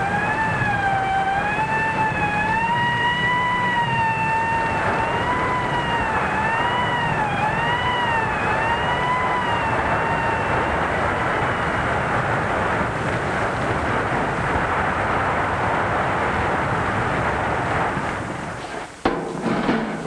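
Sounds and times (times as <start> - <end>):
fire siren wailing: 0.0 - 16.7
clattering: 18.6 - 20.0
sharp knock: 19.0 - 20.0.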